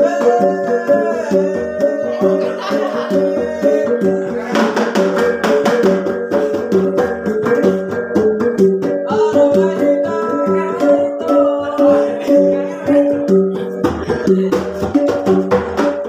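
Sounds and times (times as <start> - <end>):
voices calling out: 0.0 - 5.1
gongs struck in rhythm: 0.0 - 16.0
stick-beaten drum: 0.0 - 16.0.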